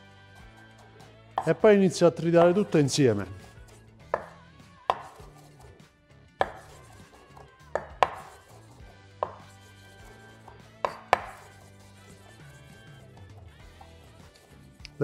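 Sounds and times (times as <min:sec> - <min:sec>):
knife chopping on wooden board: 0:00.7 - 0:01.6, 0:02.4 - 0:02.8, 0:04.1 - 0:05.5, 0:06.4 - 0:09.6, 0:10.2 - 0:11.7.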